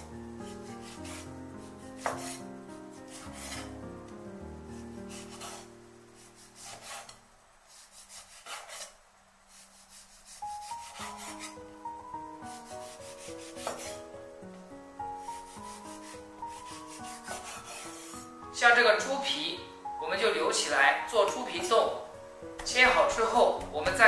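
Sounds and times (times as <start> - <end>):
soft background music: 0.0 - 7.4, 10.0 - 24.0
cleaver chopping on wooden board: 2.0 - 2.4.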